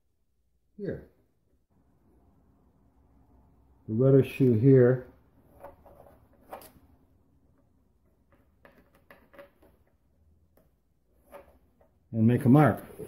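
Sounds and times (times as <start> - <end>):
pencil taps and scrapes: 5.5 - 6.9, 7.5 - 12.0.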